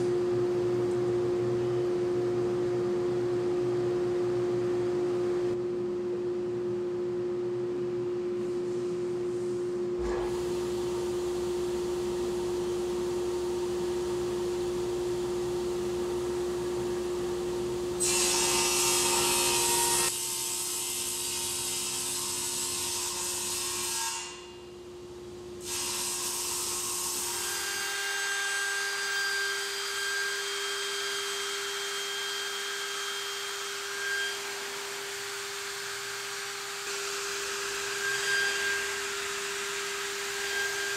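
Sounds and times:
router spindle hum and whine: 0:09.8 - 0:20.1, 0:29.5 - 0:40.9
table saw humming: 0:10.0 - 0:24.5, 0:25.6 - 0:40.9
saw blade cutting wood: 0:25.6 - 0:40.9.

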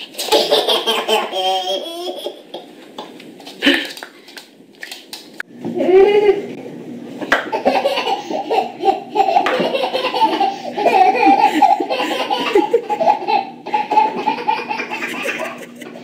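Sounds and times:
hearty laughter: 0:07.6 - 0:16.0.

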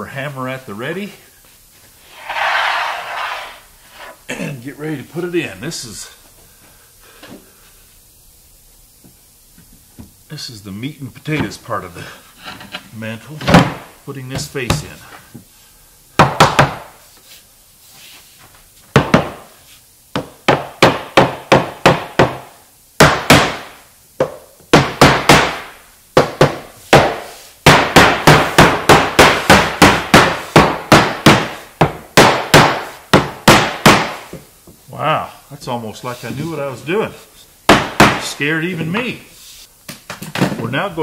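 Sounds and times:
rubber mallet striking wood: 0:16.2 - 0:16.9, 0:20.1 - 0:34.4, 0:37.7 - 0:38.3.

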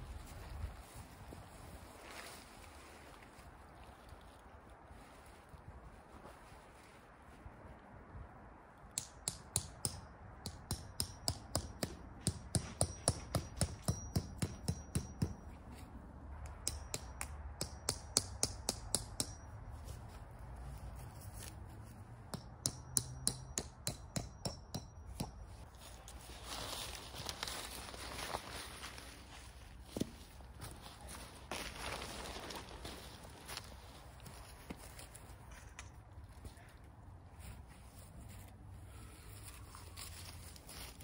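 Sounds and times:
metal stake being hammered: 0:08.9 - 0:15.6, 0:16.4 - 0:19.6, 0:22.3 - 0:25.6.

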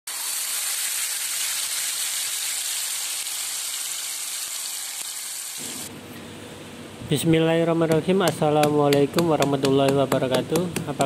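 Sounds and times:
spice paste sizzling in oil: 0:00.1 - 0:05.9.

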